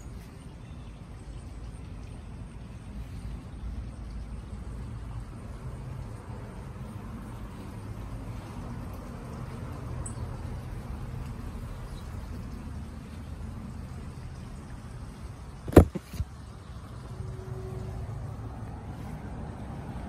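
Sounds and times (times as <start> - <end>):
phone knocking into leaves: 15.6 - 16.3.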